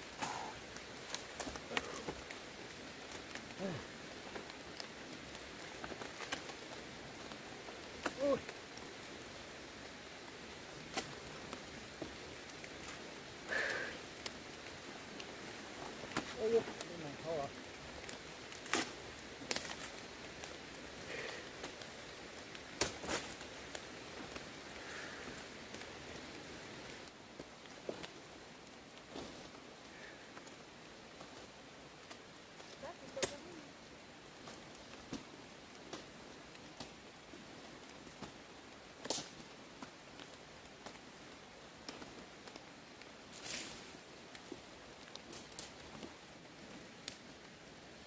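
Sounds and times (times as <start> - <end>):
leaves rustling: 0.0 - 48.0
twigs snapping: 0.1 - 9.3, 10.6 - 25.9, 38.0 - 41.0, 41.8 - 46.1.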